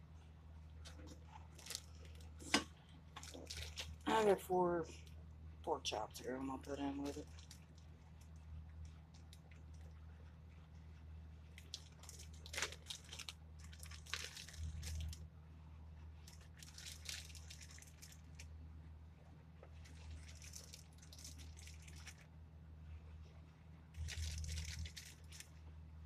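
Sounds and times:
low steady hum: 0.0 - 26.0
wet meat handling noises: 0.8 - 4.0, 11.6 - 15.2, 16.3 - 18.4, 19.7 - 22.3.

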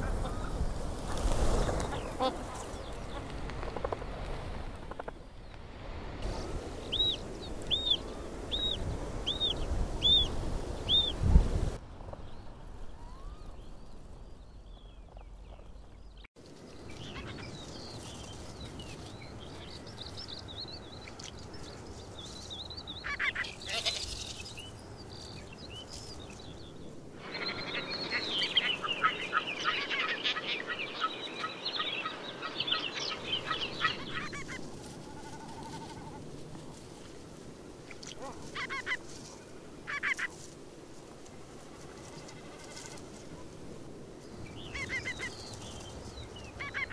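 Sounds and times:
wading birds calling: 27.2 - 36.3, 37.9 - 40.4, 44.6 - 45.6, 46.3 - 46.9.

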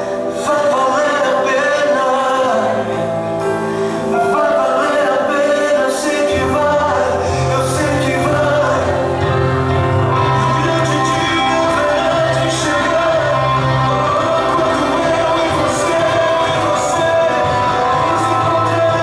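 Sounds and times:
gospel song with singing: 0.0 - 19.0
deep bass line: 6.4 - 19.0.

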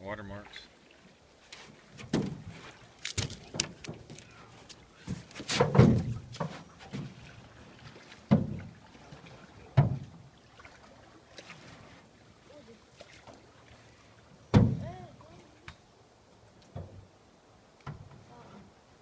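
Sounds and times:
paddle knocking canoe hull: 1.6 - 11.0, 14.5 - 15.8.

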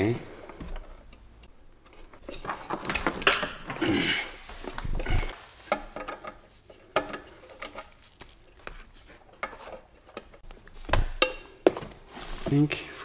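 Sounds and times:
cable rustling: 1.8 - 10.9.

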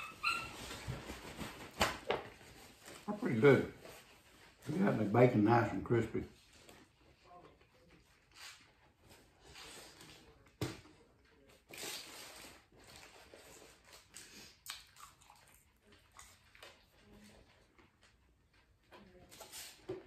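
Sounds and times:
person chewing food: 13.9 - 18.7.

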